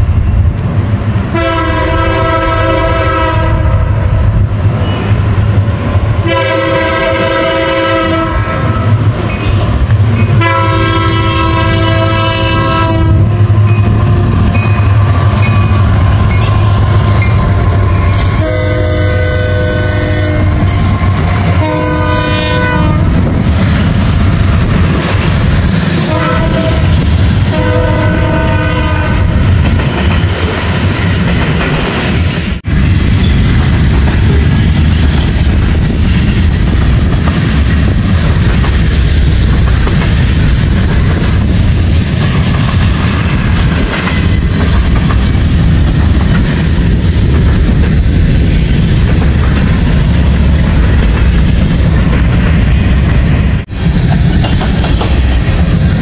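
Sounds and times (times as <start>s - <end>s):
diesel locomotive drone: 0.0s - 56.0s
locomotive air horn blasts: 1.3s - 3.8s, 6.2s - 8.8s, 10.4s - 23.2s, 26.1s - 29.3s
train wheels clattering on rails: 4.0s - 56.0s.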